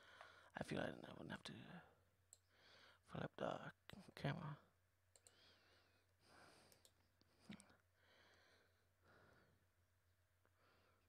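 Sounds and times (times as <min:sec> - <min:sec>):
small click: 0:05.1 - 0:05.4
faint breaths: 0:05.2 - 0:09.7.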